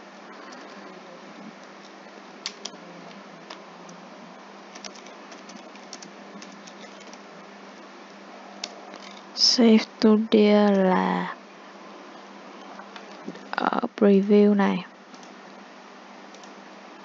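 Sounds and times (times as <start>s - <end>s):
faint hum: 0.0s - 17.0s
computer keyboard typing: 4.7s - 7.2s.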